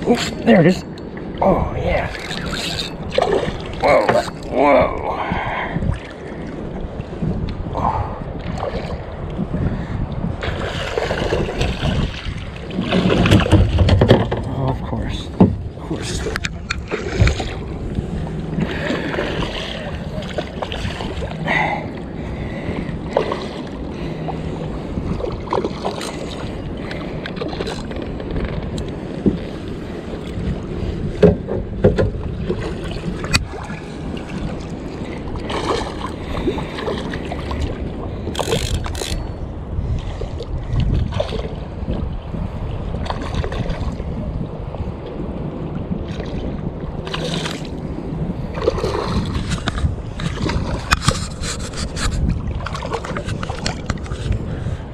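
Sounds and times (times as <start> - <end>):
water slapping hull: 0.0 - 54.9
wind buffeting microphone: 0.0 - 54.9.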